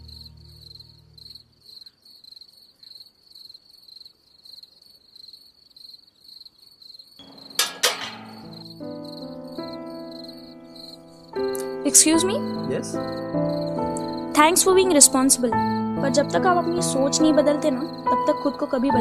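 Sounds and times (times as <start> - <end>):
music: 0.0 - 1.5, 7.2 - 19.0
crickets chirping: 0.0 - 11.8, 12.4 - 16.2, 17.4 - 18.9.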